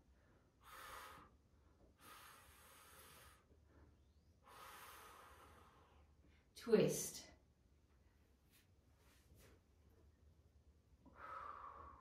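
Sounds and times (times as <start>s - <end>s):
person breathing slowly: 0.0s - 6.3s, 11.1s - 12.0s.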